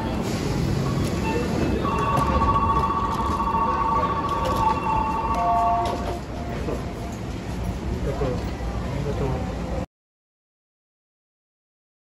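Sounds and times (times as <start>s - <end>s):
low station rumble: 0.0s - 9.9s
electronic door warning tone: 1.2s - 6.2s.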